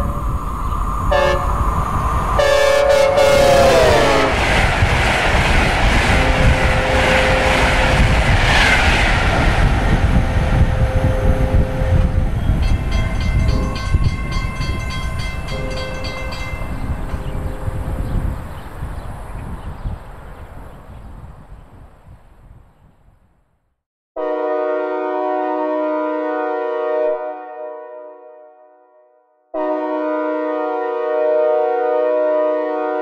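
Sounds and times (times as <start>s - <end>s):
train rushing rumble: 0.0s - 22.2s
rail clatter: 0.8s - 10.8s, 11.5s - 18.6s
synthesized train air horn: 1.1s - 1.8s, 2.4s - 4.4s, 6.1s - 8.0s, 10.5s - 12.3s, 24.2s - 33.0s.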